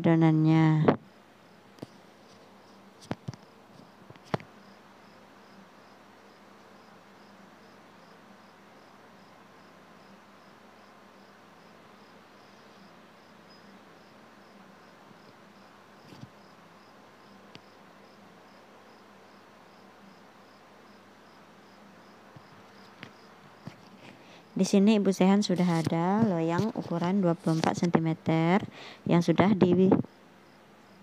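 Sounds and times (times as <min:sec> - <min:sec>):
faint background hiss: 0:00.0 - 0:31.0
cricket chirping: 0:01.1 - 0:24.6, 0:30.0 - 0:31.0.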